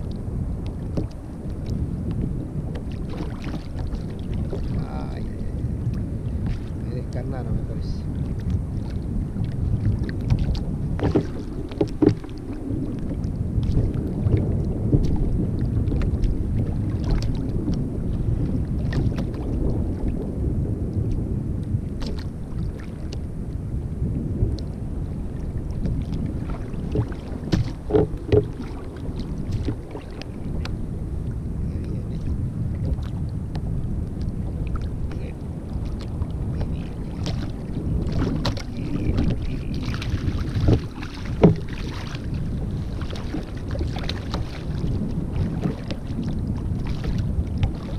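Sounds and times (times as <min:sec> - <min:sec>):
water lapping against hull: 0:00.0 - 0:47.9
wind buffeting microphone: 0:00.0 - 0:47.9
small knocks: 0:11.0 - 0:12.3, 0:27.0 - 0:28.6, 0:41.4 - 0:41.7.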